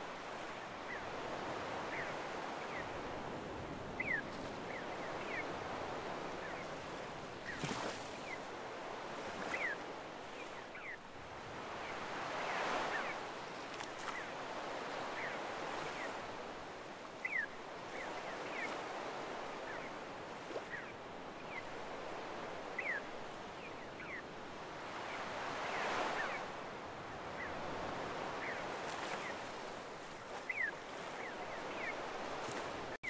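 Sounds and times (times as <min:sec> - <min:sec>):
small waves washing on shore: 0:00.0 - 0:33.0
seagulls calling: 0:04.0 - 0:06.7, 0:30.3 - 0:32.4.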